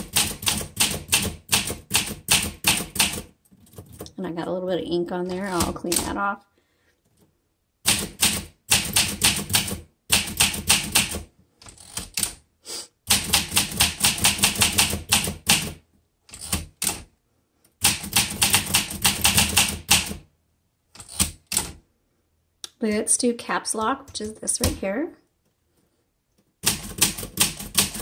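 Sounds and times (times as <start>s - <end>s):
typewriter keystrokes: 0.0s - 4.2s, 7.9s - 12.4s, 13.1s - 17.1s, 17.8s - 20.2s, 26.6s - 28.0s.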